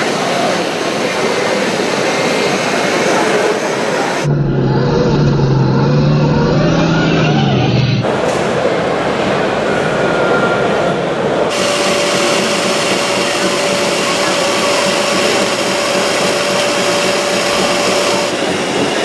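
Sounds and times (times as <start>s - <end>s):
hall noise: 0.0s - 19.0s
small electric motor whining: 11.5s - 18.4s.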